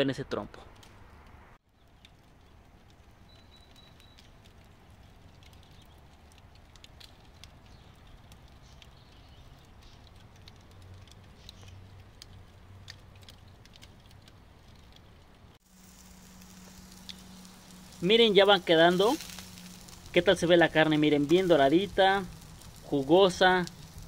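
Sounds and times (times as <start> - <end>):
charcoal fire crackling: 0.0 - 24.0
low steady hum: 14.2 - 24.0.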